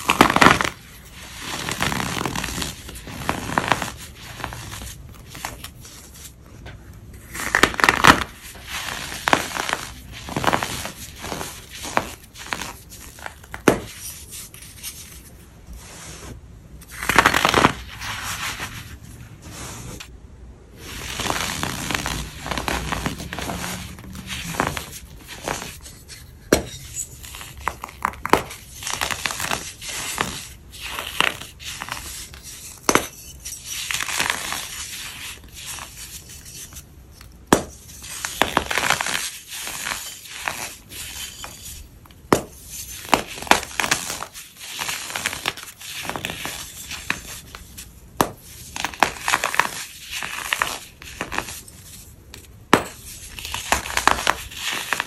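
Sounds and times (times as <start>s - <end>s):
powder blocks crunching: 20.8s - 36.6s, 52.7s - 55.0s.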